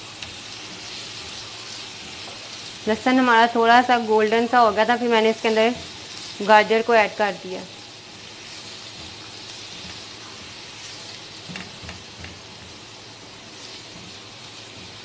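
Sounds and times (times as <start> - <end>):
vegetables sizzling in oil: 0.0 - 15.0.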